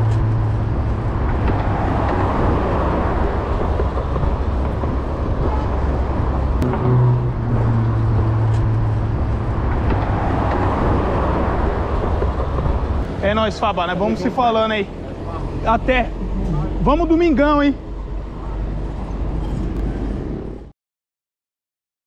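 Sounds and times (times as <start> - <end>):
road traffic: 0.0 - 20.7.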